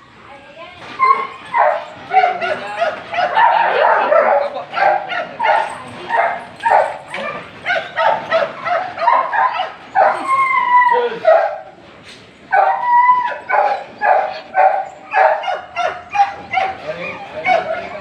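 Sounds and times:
dog yipping and whining: 0:01.0 - 0:11.6, 0:12.5 - 0:18.0.

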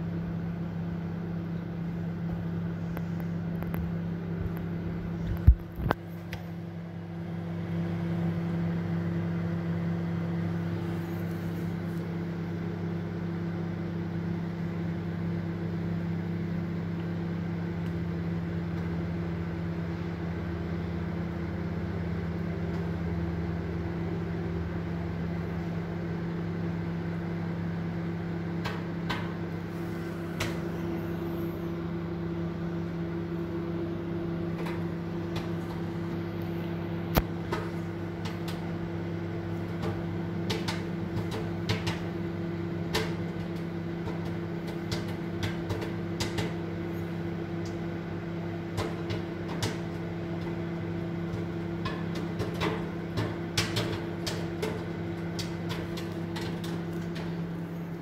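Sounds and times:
microwave oven humming: 0:00.0 - 0:58.0
popcorn popping: 0:02.2 - 0:06.5, 0:28.0 - 0:31.2, 0:33.1 - 0:58.0.

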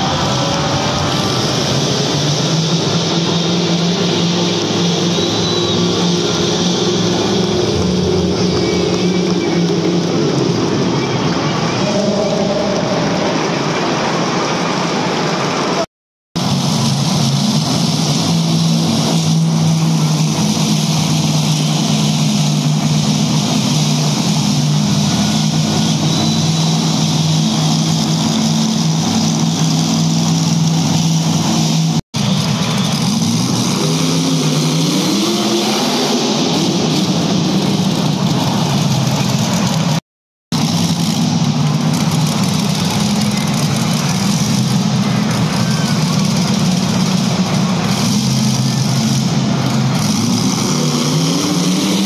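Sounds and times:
monster truck engine revving: 0:00.0 - 0:52.0.

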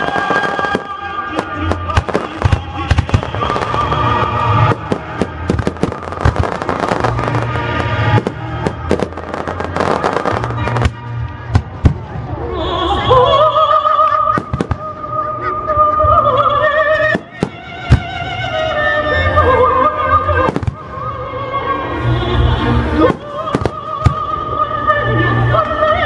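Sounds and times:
fireworks bangs and crackles: 0:00.0 - 0:12.5, 0:14.3 - 0:15.2, 0:17.1 - 0:18.2, 0:20.4 - 0:21.1, 0:23.0 - 0:24.5
music: 0:00.0 - 0:26.0.

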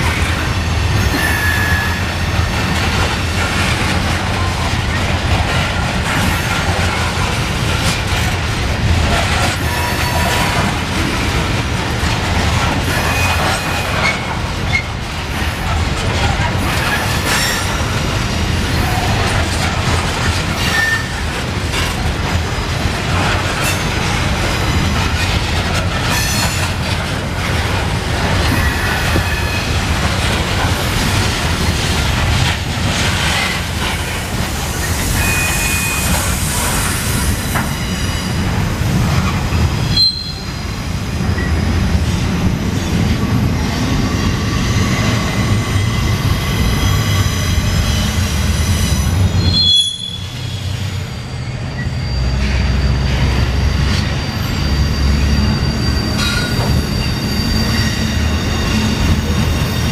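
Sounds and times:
steel wheels rumbling on rail: 0:00.0 - 0:59.9
high wheel squeals: 0:01.0 - 0:02.4, 0:34.7 - 0:38.4, 0:39.8 - 0:40.6, 0:44.4 - 0:59.9.

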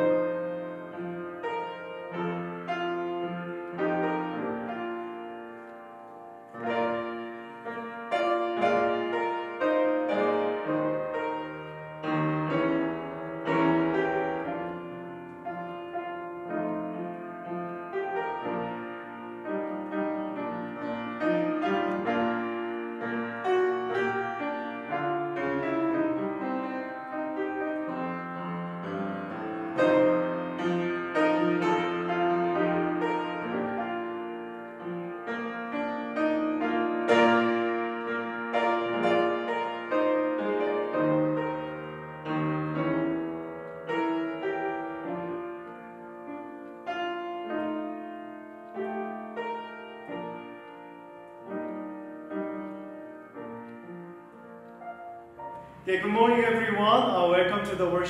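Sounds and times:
upright piano playing: 0:00.0 - 0:58.0.

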